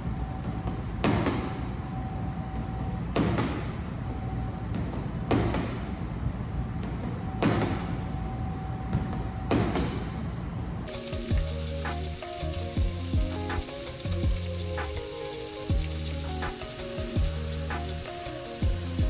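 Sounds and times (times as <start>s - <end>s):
steak sizzling in a pan: 10.9s - 19.0s.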